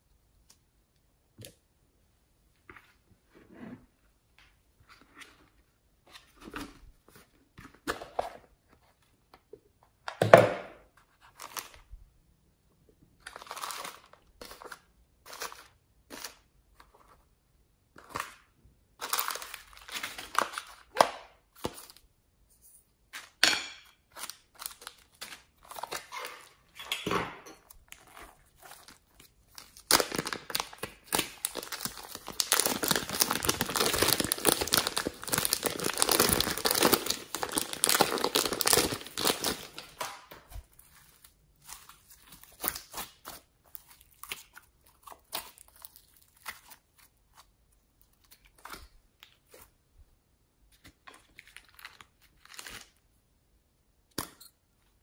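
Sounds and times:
plastic bag crinkling: 0:27.9 - 0:44.2.

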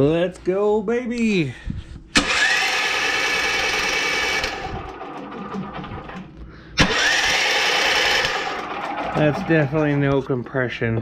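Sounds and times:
electric starter cranking engine: 0:02.1 - 0:10.0.

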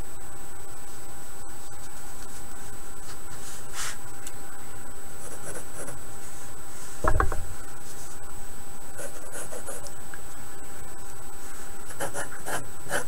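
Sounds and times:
background hiss and hum: 0:00.0 - 0:13.0
pencil scratching on paper: 0:05.2 - 0:06.0, 0:09.0 - 0:09.9, 0:11.5 - 0:13.0
loud thump: 0:07.0 - 0:07.6.

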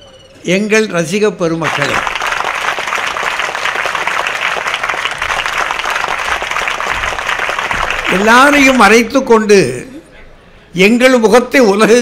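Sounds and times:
crowd applauding: 0:01.6 - 0:09.1.

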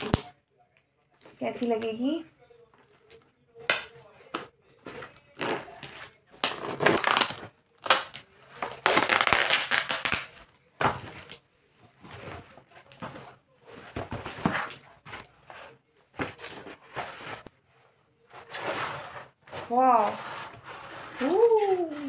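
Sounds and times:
cardboard box tearing: 0:06.4 - 0:07.4
cardboard rustling: 0:11.9 - 0:17.5.

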